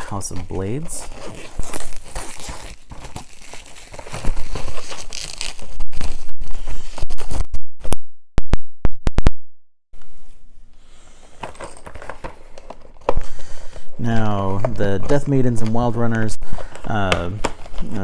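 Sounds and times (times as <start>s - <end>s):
plastic packaging tearing and crinkling: 0.0s - 7.4s.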